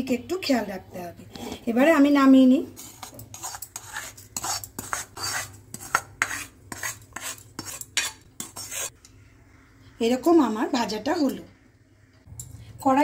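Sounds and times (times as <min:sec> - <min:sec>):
spatula scraping semolina in pan: 0:02.7 - 0:09.7.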